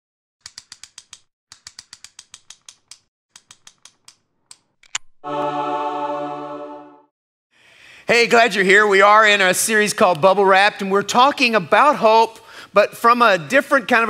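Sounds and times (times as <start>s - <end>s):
sharp clicks: 0.4s - 5.1s
sustained chord of steady tones: 5.2s - 7.1s.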